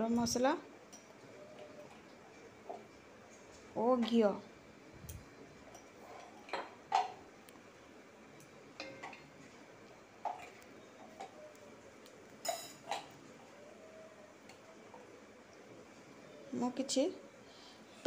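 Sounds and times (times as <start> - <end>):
metal spoon clinking on pot: 8.8 - 9.2.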